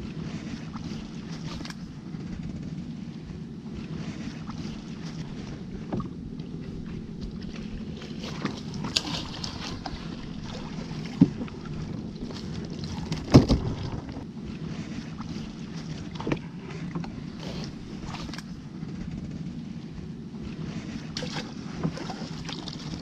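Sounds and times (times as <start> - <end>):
boat motor low hum: 0.0 - 23.0
water noise: 0.0 - 23.0
wind noise: 2.1 - 16.6
sharp knocks on wooden hull: 11.0 - 11.5, 13.0 - 14.2.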